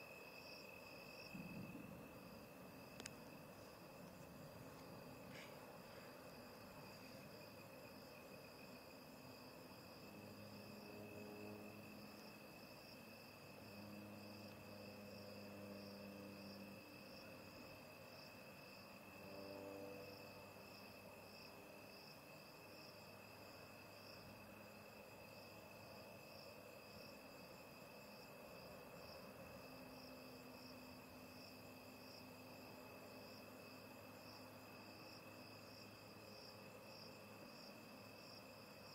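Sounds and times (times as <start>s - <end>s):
cricket pulsing trill: 0.0s - 38.9s
cricket trilling: 0.0s - 38.9s
faint low hum: 0.0s - 38.9s.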